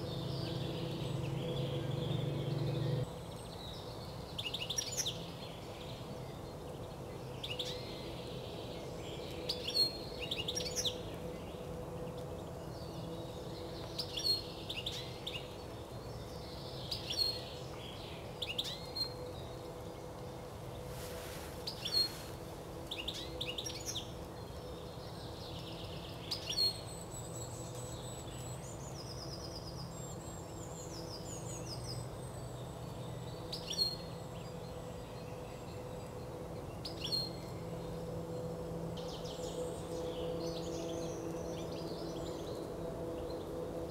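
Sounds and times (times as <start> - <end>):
steady low rumble: 0.0 - 3.1
faint hum: 0.0 - 4.3, 5.2 - 43.9
songbirds chirping: 0.0 - 43.9.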